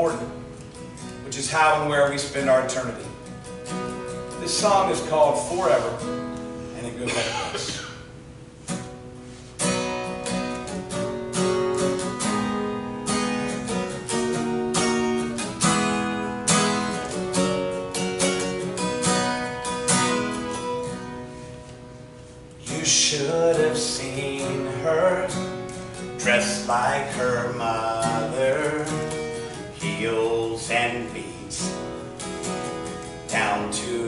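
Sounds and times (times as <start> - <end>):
acoustic guitar strumming chords: 0.0 - 34.0
man singing: 4.3 - 6.1, 22.6 - 25.6, 26.2 - 31.8, 33.3 - 34.0.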